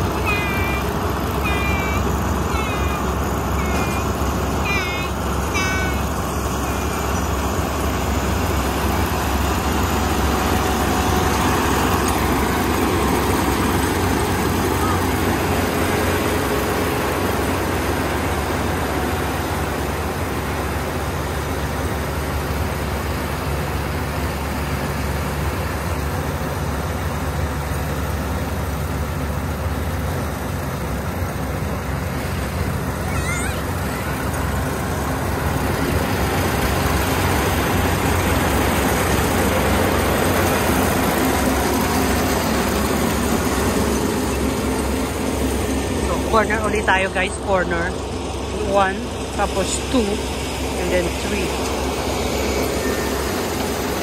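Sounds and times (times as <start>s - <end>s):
diesel engine drone: 0.0s - 54.0s.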